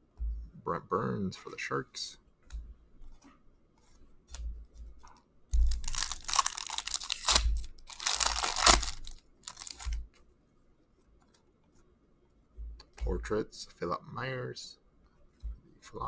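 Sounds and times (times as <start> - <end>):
card pack wrapper tearing and crinkling: 5.6 - 10.0.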